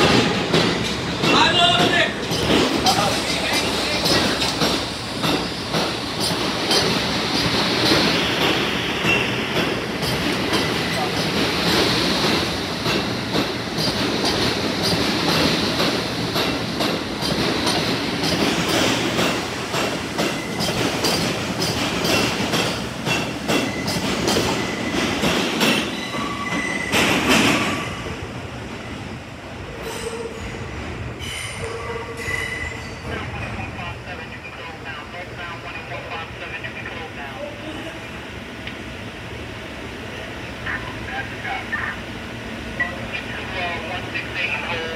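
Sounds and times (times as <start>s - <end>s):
train clacking over rail joints: 0.0s - 28.2s
subway train wheel noise: 0.0s - 44.9s
train wheel squeal: 23.5s - 25.0s, 25.7s - 28.0s, 29.8s - 33.0s.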